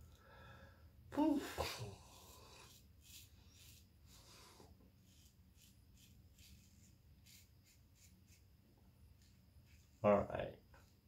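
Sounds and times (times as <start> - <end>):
razor scraping stubble: 2.0 - 4.3, 5.0 - 8.5.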